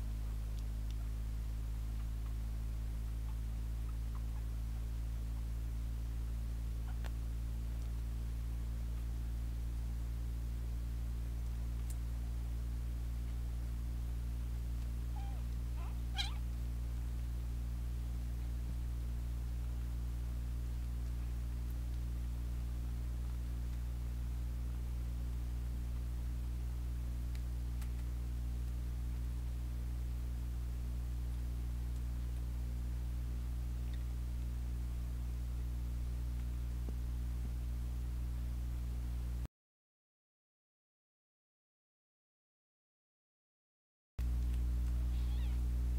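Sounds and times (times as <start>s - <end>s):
faint ticks: 0.0s - 10.0s, 11.2s - 17.4s, 18.0s - 37.6s, 44.2s - 45.9s
steady low hum: 0.0s - 39.5s, 44.2s - 45.9s
kittens mewing: 15.1s - 16.5s, 45.1s - 45.7s.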